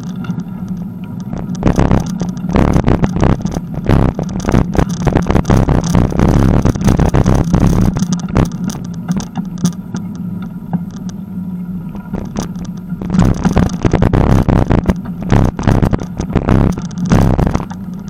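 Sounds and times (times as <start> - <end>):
bicycle rattling and bumping: 0.0 - 11.2, 12.0 - 18.0
wind noise on microphone: 1.2 - 9.7, 12.0 - 18.0.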